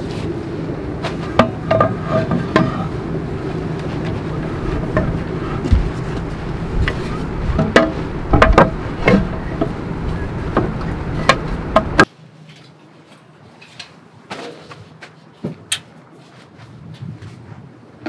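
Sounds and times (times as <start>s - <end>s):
steady low rumble: 0.0s - 12.1s.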